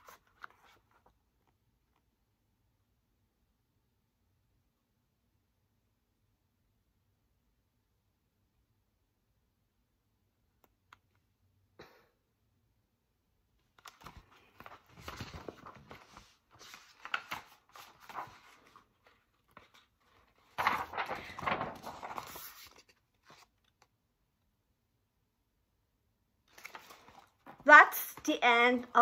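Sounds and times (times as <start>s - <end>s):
paper rustling and crinkling: 0.0s - 1.2s, 13.8s - 23.9s, 26.5s - 28.3s
book pages turning: 0.0s - 1.6s, 13.7s - 24.0s, 26.5s - 27.6s.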